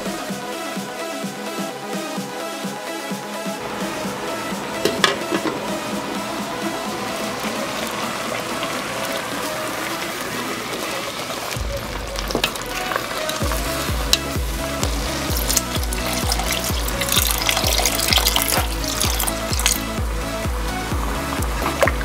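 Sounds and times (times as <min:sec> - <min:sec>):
background music with bass beat: 0:00.0 - 0:22.0
water pouring: 0:03.6 - 0:20.1.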